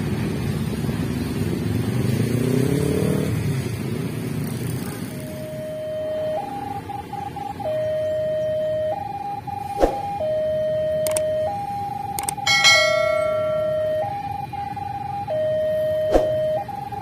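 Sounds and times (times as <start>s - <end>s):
level crossing alarm two-tone: 5.3s - 17.0s
brief ringing tone: 12.4s - 14.2s.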